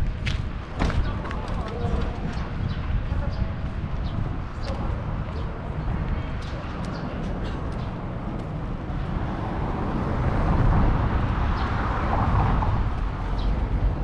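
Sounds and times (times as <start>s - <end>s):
car passing: 7.5s - 14.0s.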